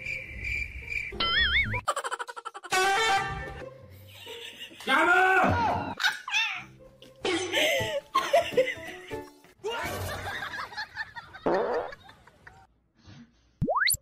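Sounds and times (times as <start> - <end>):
background music: 0.0 - 11.4
laughter: 1.8 - 2.7, 4.1 - 4.9, 7.3 - 12.7.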